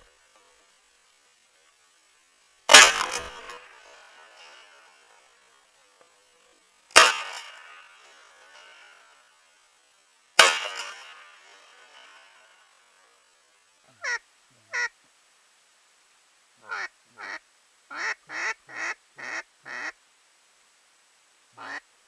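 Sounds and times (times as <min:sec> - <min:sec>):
shotgun shots with echo: 0:02.7 - 0:04.5, 0:07.0 - 0:07.8, 0:10.4 - 0:11.2
duck quacks: 0:13.9 - 0:15.0, 0:16.6 - 0:20.0, 0:21.6 - 0:21.9.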